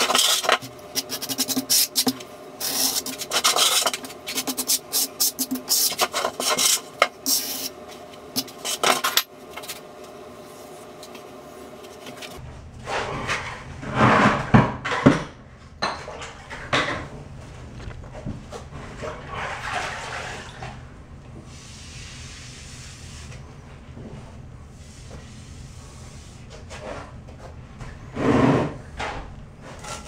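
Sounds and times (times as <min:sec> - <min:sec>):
tools scraping and tapping tiles: 0:00.0 - 0:07.6, 0:08.4 - 0:09.8.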